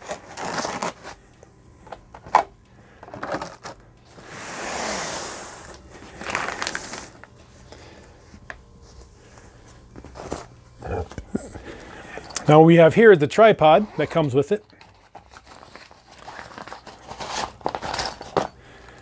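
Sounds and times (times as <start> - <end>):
packaging rustling scrape: 0.0 - 1.2, 3.0 - 7.3, 14.8 - 18.4.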